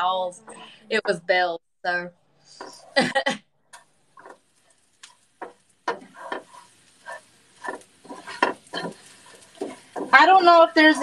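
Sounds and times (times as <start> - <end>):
wooden spoon scraping dry noodles: 5.4 - 11.0.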